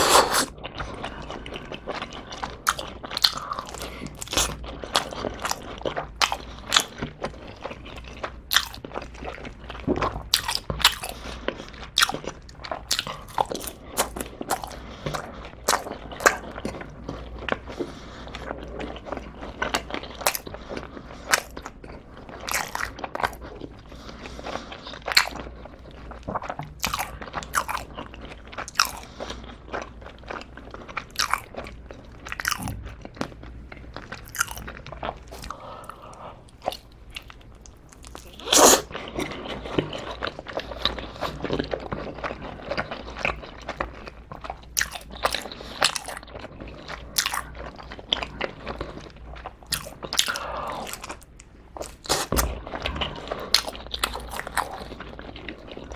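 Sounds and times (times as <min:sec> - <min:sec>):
crunchy bites and chewing: 0:26.3 - 0:29.1, 0:31.0 - 0:33.3, 0:34.1 - 0:35.6.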